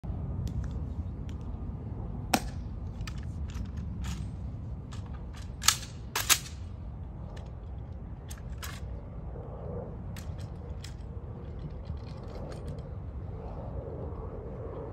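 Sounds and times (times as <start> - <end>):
rifle handling clicks and snaps: 4.9 - 6.7.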